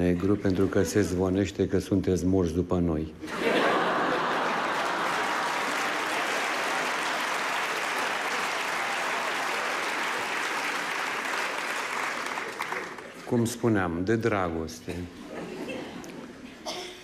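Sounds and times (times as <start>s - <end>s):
audience applauding: 3.6s - 13.5s.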